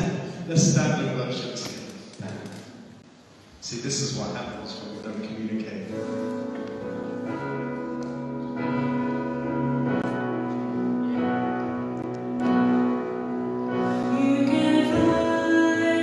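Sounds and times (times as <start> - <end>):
keyboard playing bell-like chords: 6.9 - 14.5.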